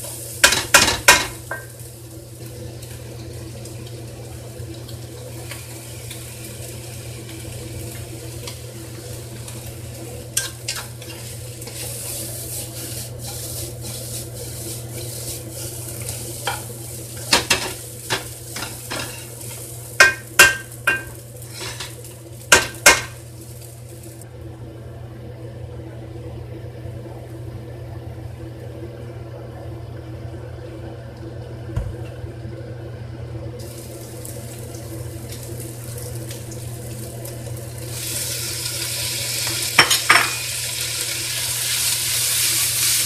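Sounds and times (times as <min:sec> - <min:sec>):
vegetables sizzling in a wok: 0:00.0 - 0:24.3, 0:33.6 - 0:43.0
wooden spatula scraping a pan: 0:10.7 - 0:15.8.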